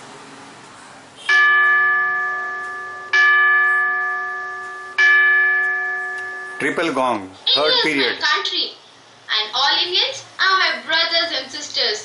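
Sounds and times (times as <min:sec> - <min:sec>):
electronic gong strikes: 0:01.3 - 0:06.9.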